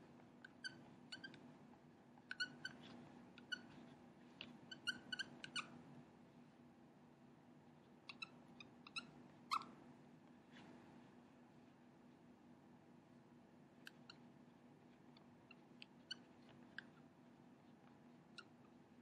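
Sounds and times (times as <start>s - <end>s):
marker squeaking on whiteboard: 0.5s - 1.4s, 2.3s - 3.9s, 4.7s - 5.8s, 8.1s - 9.7s, 15.1s - 17.0s.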